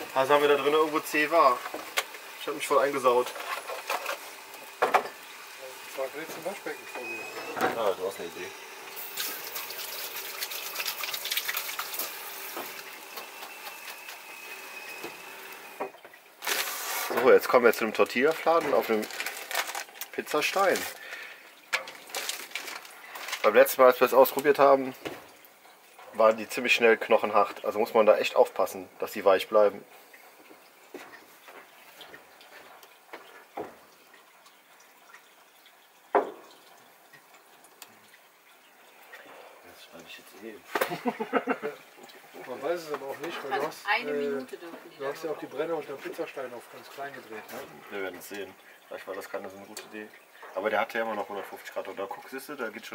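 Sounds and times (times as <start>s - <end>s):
chicken sizzling in saucepan: 0.0s - 15.9s.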